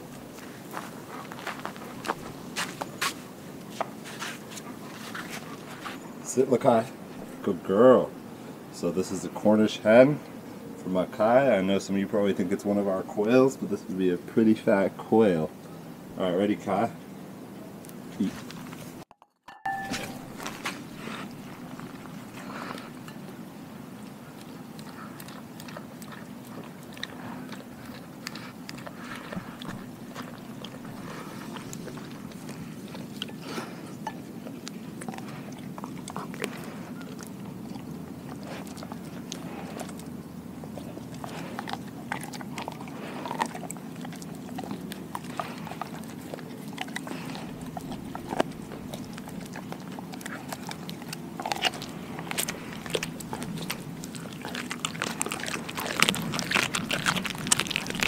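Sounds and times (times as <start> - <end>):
dog crunching bone: 0.0 - 7.4, 19.7 - 58.0
steady low hum: 19.7 - 58.0.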